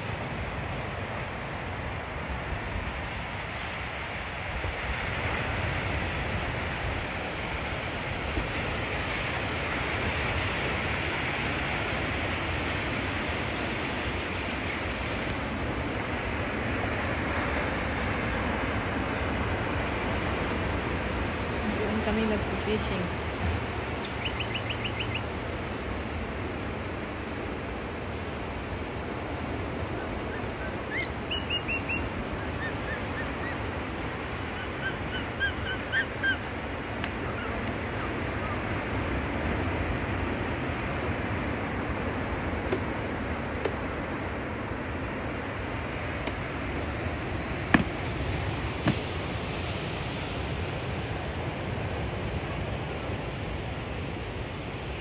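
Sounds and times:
ocean surf washing on beach: 0:00.0 - 0:55.0
bird chirping: 0:24.0 - 0:25.3, 0:30.3 - 0:33.6.

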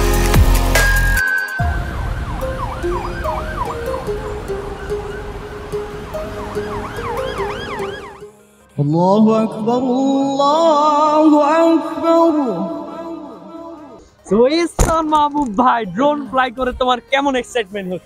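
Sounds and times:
electronic music with synth sweeps: 0:00.0 - 0:08.4.

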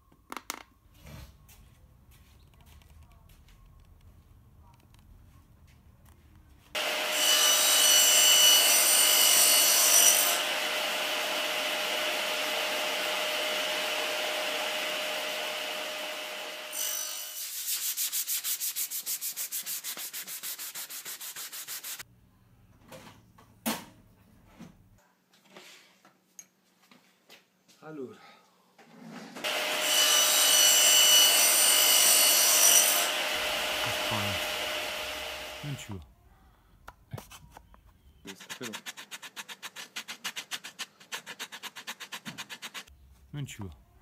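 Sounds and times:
rubbing strokes: 0:17.4 - 0:22.0, 0:38.3 - 0:42.9
power tool grinding wood: 0:32.6 - 0:36.0.

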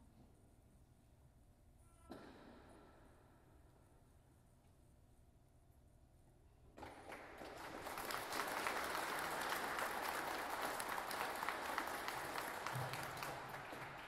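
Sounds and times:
audience applauding: 0:06.8 - 0:14.0.

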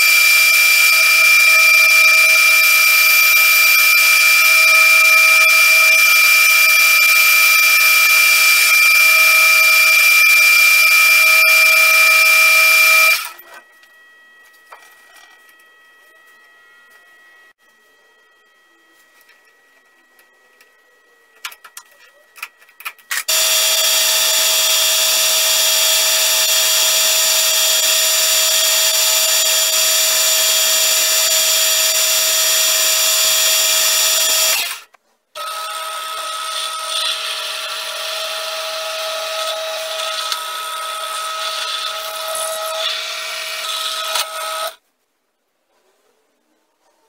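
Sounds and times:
drill press drilling metal: 0:00.0 - 0:13.4, 0:23.1 - 0:34.8, 0:35.4 - 0:44.8.

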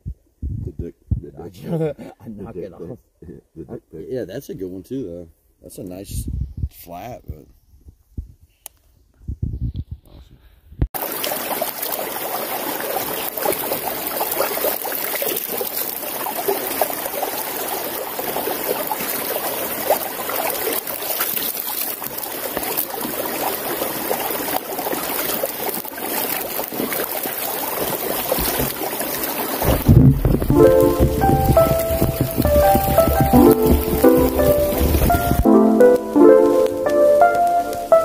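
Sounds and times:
creek water over rocks: 0:11.0 - 0:38.0.

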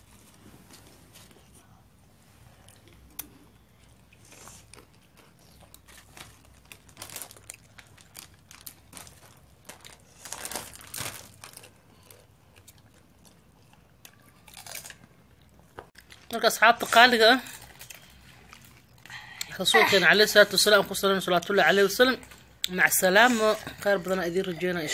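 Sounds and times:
potato crisps crunching: 0:04.1 - 0:21.0.

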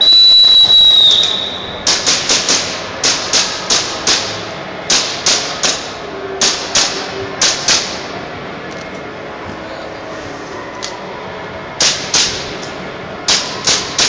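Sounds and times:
airsoft pistol shots: 0:01.2 - 0:08.1, 0:11.8 - 0:12.6, 0:13.3 - 0:14.0.

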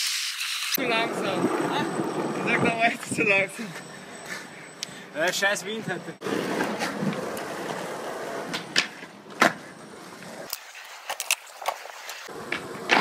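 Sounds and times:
skateboard wheels rolling on concrete: 0:00.0 - 0:04.6, 0:05.2 - 0:13.0
skateboard clacks: 0:10.5 - 0:13.0.

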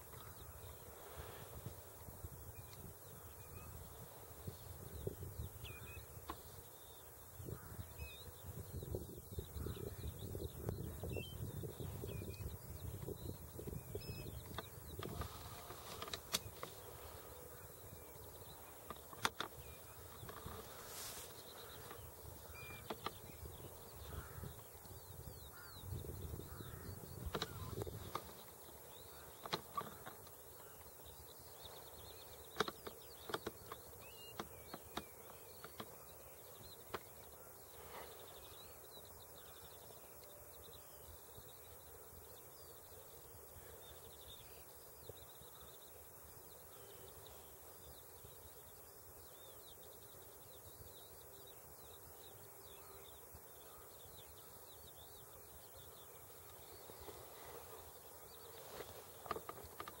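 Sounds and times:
distant birds twittering: 0:00.0 - 1:00.0
sharp clicks: 0:14.4 - 0:16.8, 0:18.8 - 0:20.6, 0:32.5 - 0:36.0.

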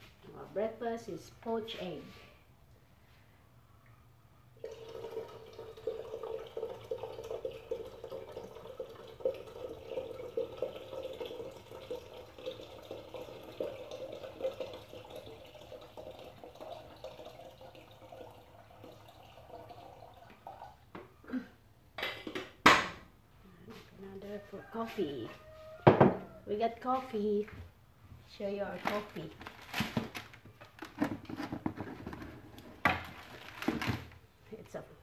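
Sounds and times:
water pouring into metal pot: 0:04.6 - 0:20.8.

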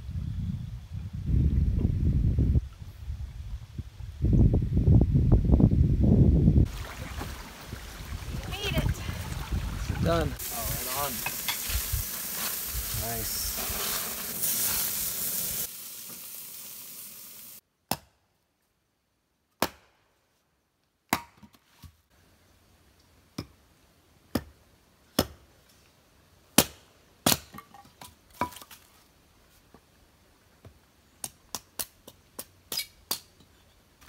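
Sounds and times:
burgers sizzling on a grill: 0:10.0 - 0:17.6.

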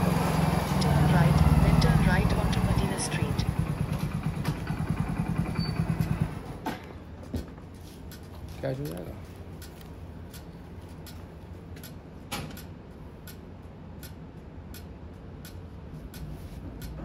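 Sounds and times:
motorcycle engine idling: 0:00.0 - 0:06.6
light ticks and clicks: 0:14.0 - 0:17.0.

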